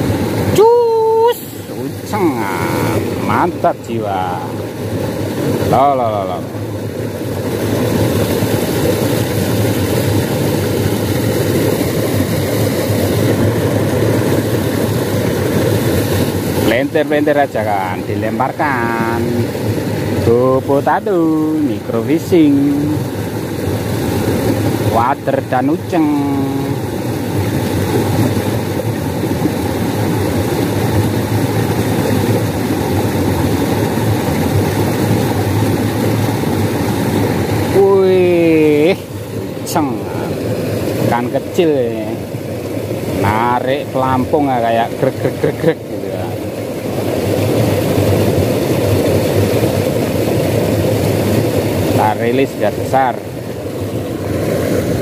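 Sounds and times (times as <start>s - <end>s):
water rushing over weir: 0.0s - 55.0s.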